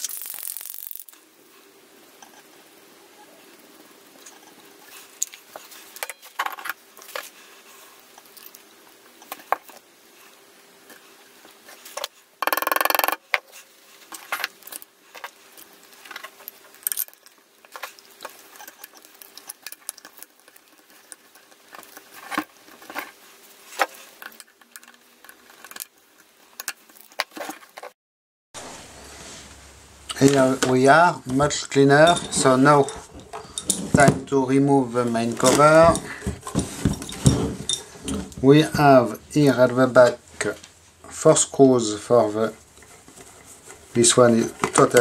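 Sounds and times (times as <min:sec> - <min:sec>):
hissing noise burst: 0:00.0 - 0:06.0
faint steady hum: 0:00.0 - 0:27.9, 0:28.6 - 0:45.0
small glass and metal parts clicking: 0:16.4 - 0:21.2, 0:32.0 - 0:33.8.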